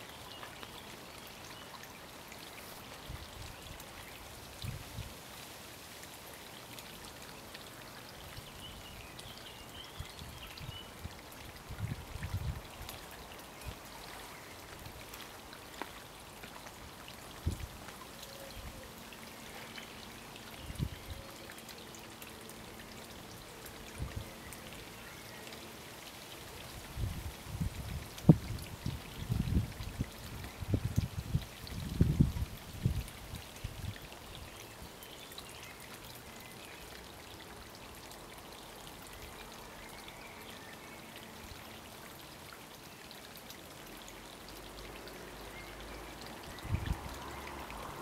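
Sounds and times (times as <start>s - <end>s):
steady outdoor hiss: 0.0s - 48.0s
wind buffeting microphone: 26.9s - 33.1s, 46.6s - 47.2s.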